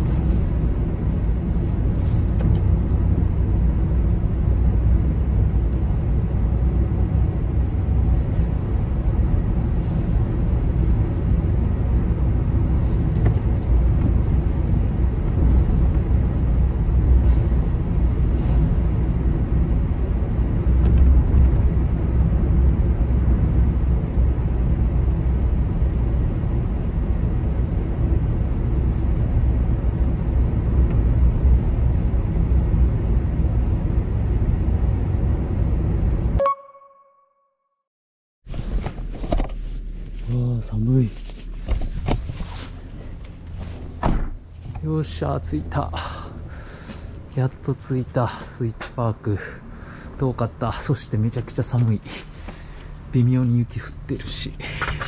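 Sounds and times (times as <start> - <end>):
car engine and tyre rumble: 0.0 - 36.4, 38.4 - 55.0.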